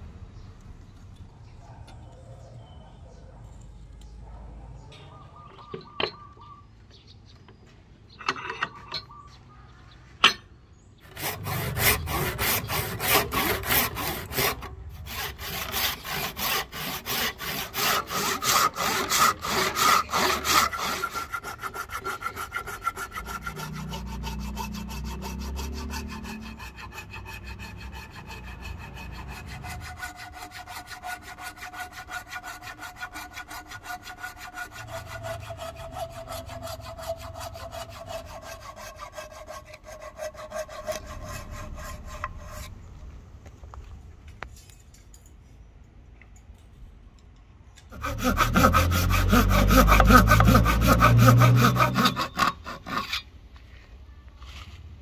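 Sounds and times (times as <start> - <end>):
hand saw rasping through wood: 11.0 - 42.7, 47.9 - 53.3.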